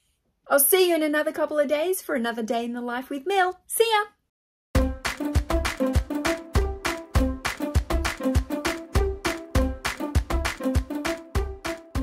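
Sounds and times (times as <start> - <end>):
background music with steady beat: 4.8 - 12.0.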